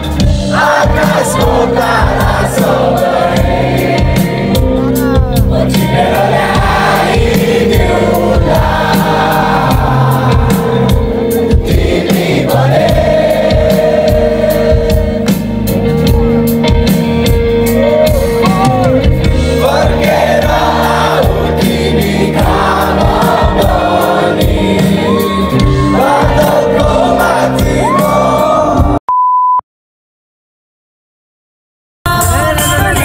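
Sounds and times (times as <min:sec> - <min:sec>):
person singing: 0:00.0 - 0:16.5, 0:17.6 - 0:29.0, 0:32.1 - 0:33.0
drums with cymbal hits: 0:00.0 - 0:29.0
electric guitars: 0:00.0 - 0:29.0
short steady beep: 0:29.1 - 0:29.6.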